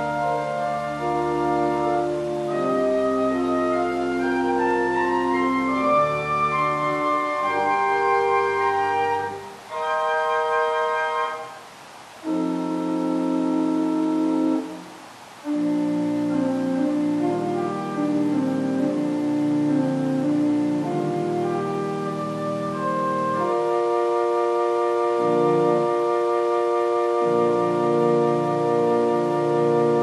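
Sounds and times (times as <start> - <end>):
organ playing sustained chords: 0.0 - 11.6, 12.2 - 30.0.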